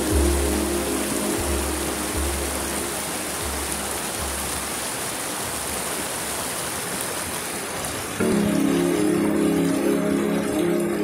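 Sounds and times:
deep bass music: 0.0 - 5.0, 8.2 - 11.0
mountain stream rushing: 0.0 - 11.0.

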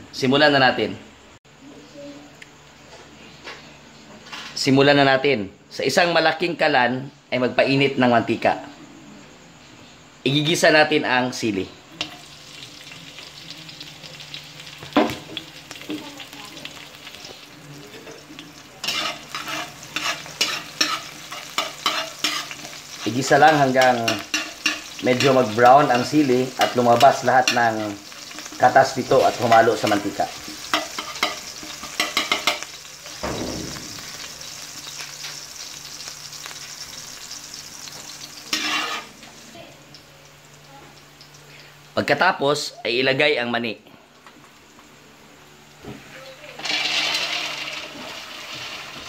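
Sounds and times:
chilies sizzling in hot oil: 11.3 - 43.1, 44.5 - 49.0
spatula scraping a wok: 18.1 - 32.8, 37.4 - 39.3, 46.6 - 49.0
sharp knock: 33.2 - 33.9.

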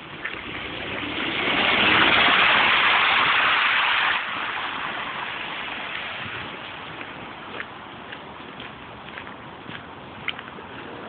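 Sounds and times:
car tyres hissing through slush: 0.0 - 8.3.

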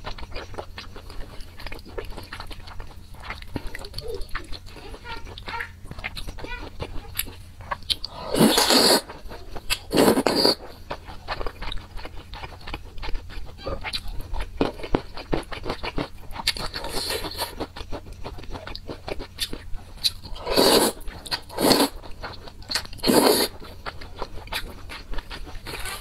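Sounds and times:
wet chewing with mouth clicks: 0.0 - 26.0
noodle slurping: 8.1 - 9.2, 9.8 - 10.7, 20.3 - 22.1, 23.0 - 23.7.

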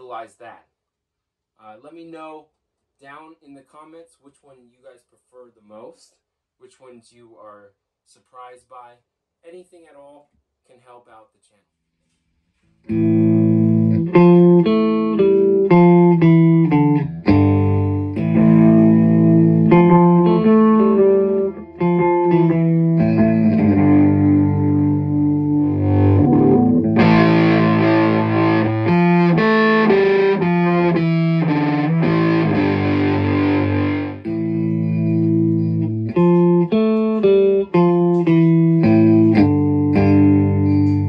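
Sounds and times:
electric guitar strumming chords: 12.9 - 41.0.

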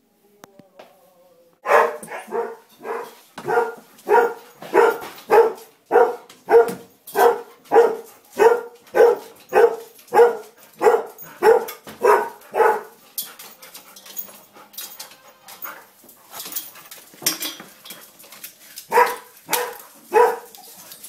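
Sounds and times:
dog barking: 1.6 - 13.0, 18.9 - 20.5.

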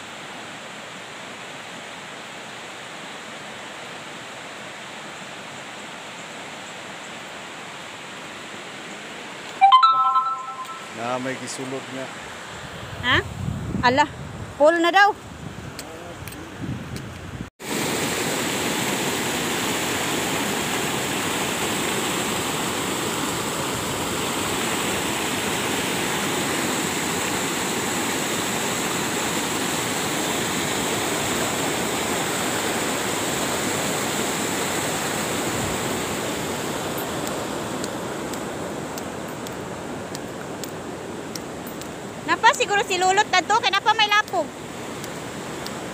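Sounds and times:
water rushing through culverts: 17.6 - 45.9.

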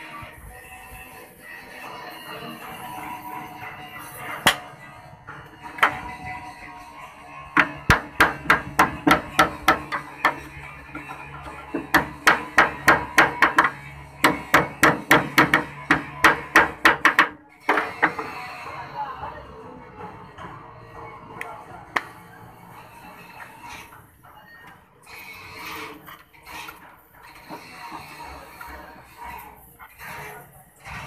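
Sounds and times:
hammer striking metal panel: 4.4 - 4.7, 7.6 - 18.2.

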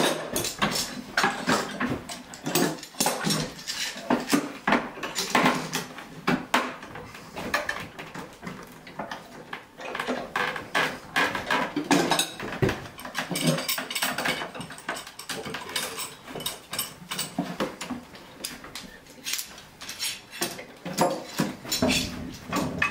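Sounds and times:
metal clamps clattering: 0.0 - 5.9, 9.8 - 18.0, 19.3 - 22.9.

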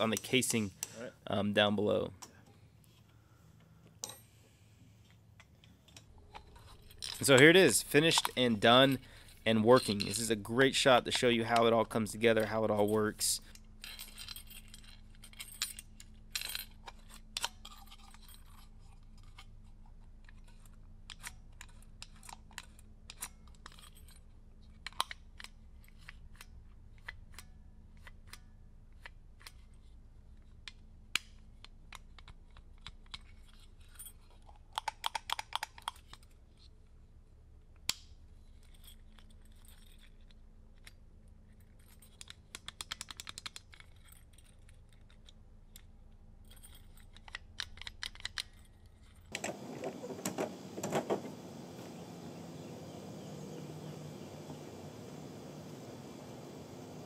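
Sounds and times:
steady low hum: 49.4 - 57.0.

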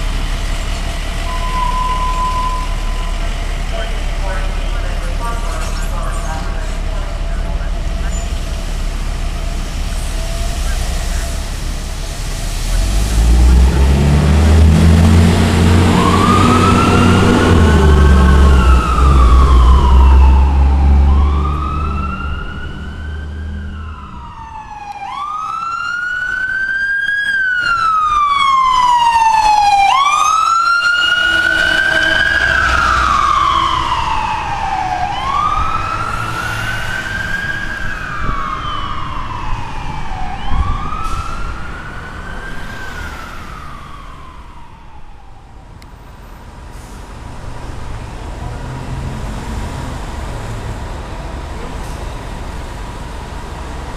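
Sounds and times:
low vehicle rumble: 0.0 - 53.9
ambulance siren wailing: 1.2 - 8.4, 12.8 - 46.1.

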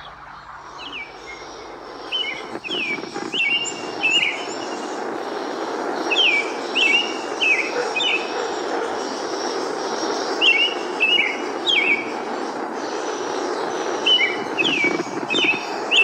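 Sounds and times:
steady background rush: 0.0 - 16.0
bird singing whistled phrases: 2.1 - 4.8, 6.1 - 8.3, 10.4 - 12.1, 14.0 - 16.0.

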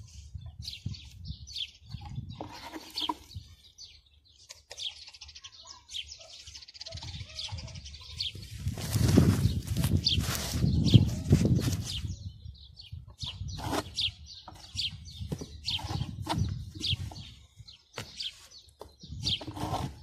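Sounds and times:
small birds chirping: 0.0 - 20.0
trowel scraping mud and stone: 2.0 - 3.5, 13.2 - 17.4, 18.3 - 20.0
rustling rush: 8.4 - 12.0.

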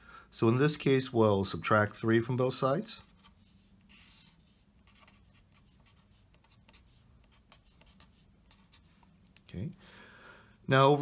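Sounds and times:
ballpoint pen scratching on paper: 3.9 - 8.9.

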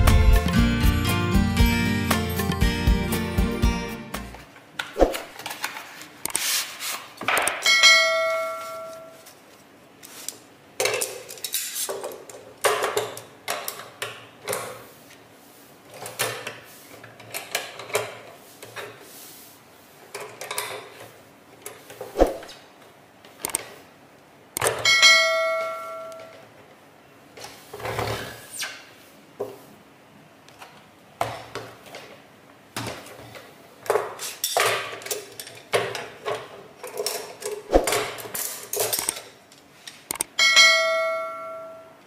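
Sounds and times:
bell-like ding: 7.7 - 9.2, 24.9 - 26.2, 40.4 - 42.0.

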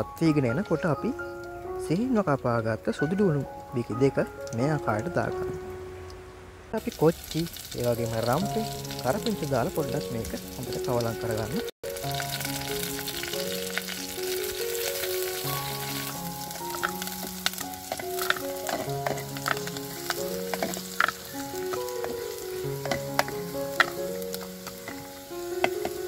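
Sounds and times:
oil sizzling in a pot: 6.7 - 26.0.

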